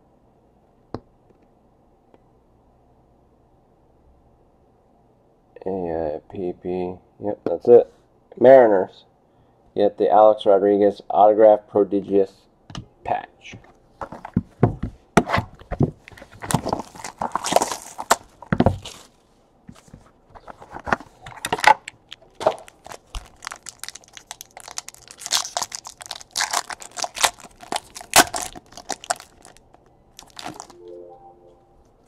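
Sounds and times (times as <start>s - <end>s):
foil wrapper tearing and crinkling: 16.4s - 19.0s, 21.3s - 30.8s.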